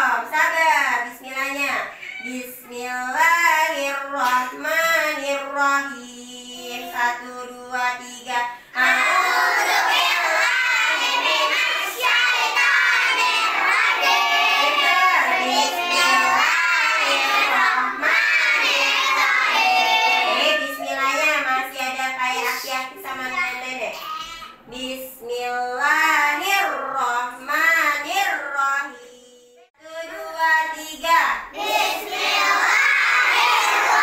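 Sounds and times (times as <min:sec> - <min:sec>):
children singing together: 0:08.7 - 0:21.1, 0:31.5 - 0:34.0.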